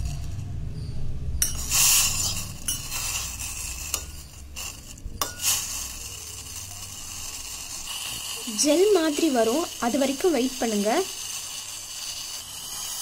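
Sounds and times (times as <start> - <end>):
metal spoon scraping a pot: 0.0 - 13.0
sharp clinks: 1.4 - 8.5.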